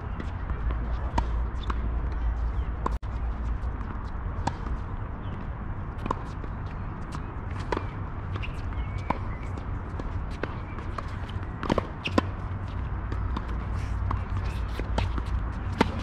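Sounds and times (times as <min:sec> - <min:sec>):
tennis ball bounces: 0:06.0 - 0:16.0.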